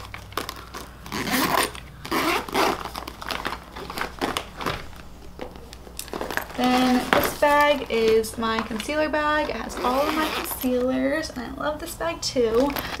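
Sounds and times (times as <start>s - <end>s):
zipper pulled on vinyl pouch: 0.0s - 3.0s, 9.7s - 10.6s
plastic handling: 0.0s - 10.9s.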